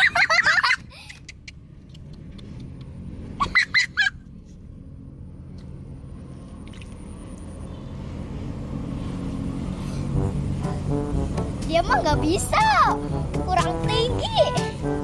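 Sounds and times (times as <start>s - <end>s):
steady low rumble: 4.2s - 15.0s.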